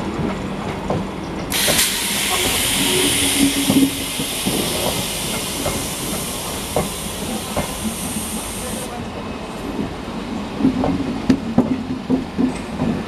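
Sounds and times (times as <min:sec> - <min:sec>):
electric train passing: 0:01.4 - 0:09.0
loud steady hiss: 0:01.5 - 0:08.9.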